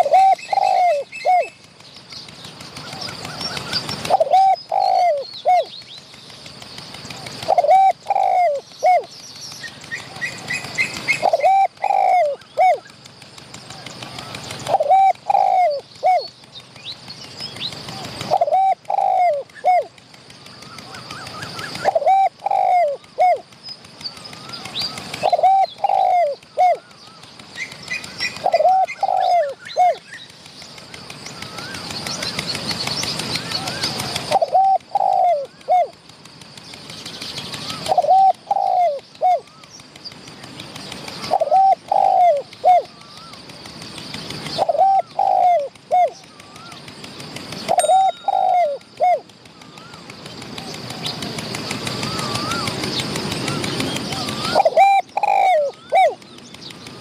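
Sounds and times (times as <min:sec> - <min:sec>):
dove cooing: 0:00.0 - 0:01.6, 0:02.8 - 0:05.7, 0:07.2 - 0:09.1, 0:09.8 - 0:12.9, 0:13.9 - 0:16.3, 0:17.8 - 0:19.9, 0:20.6 - 0:23.5, 0:24.4 - 0:30.2, 0:33.6 - 0:36.0, 0:37.6 - 0:39.7, 0:41.1 - 0:43.4, 0:44.5 - 0:46.8, 0:47.7 - 0:51.4, 0:52.0 - 0:56.2
small birds chirping: 0:00.0 - 0:57.0.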